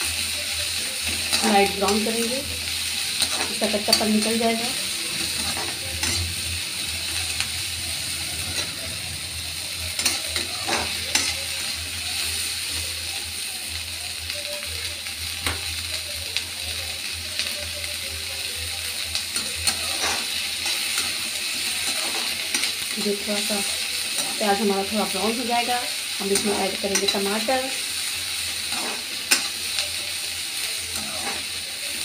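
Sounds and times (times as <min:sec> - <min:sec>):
onions sizzling in oil: 0:00.0 - 0:32.0
metal spoon scraping a pan: 0:03.0 - 0:06.6, 0:09.9 - 0:11.8, 0:19.3 - 0:27.8, 0:28.6 - 0:29.9, 0:30.9 - 0:31.5.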